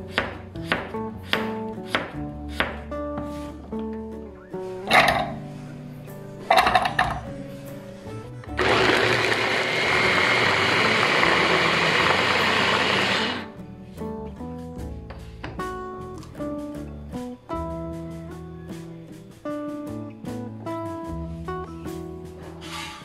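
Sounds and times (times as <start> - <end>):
plucked guitar music: 0.0 - 9.2, 13.4 - 22.5
food processor blade whirring: 8.6 - 13.5.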